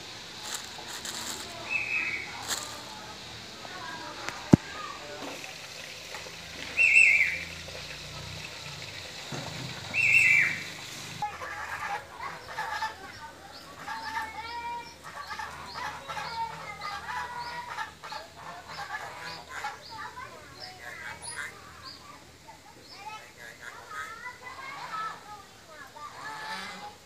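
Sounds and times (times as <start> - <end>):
songbird chirping and whistling: 1.6 - 2.4, 6.7 - 7.4, 9.9 - 10.6
bird calls falling in pitch: 9.9 - 10.6.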